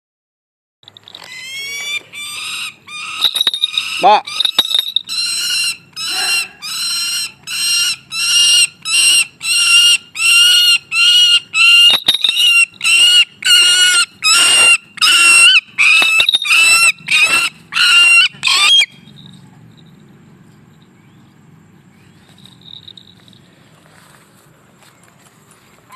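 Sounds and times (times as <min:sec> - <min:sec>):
bird of prey squealing: 0:01.1 - 0:19.2.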